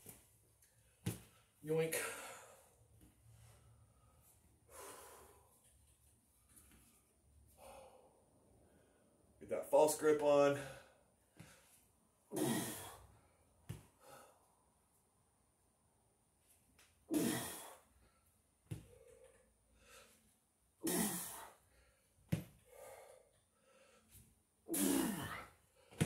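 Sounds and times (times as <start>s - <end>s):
quiet breathing: 0.7s - 9.4s, 21.4s - 24.4s
man exhaling forcefully: 12.3s - 13.1s, 17.1s - 17.8s, 20.8s - 21.6s, 24.7s - 26.0s.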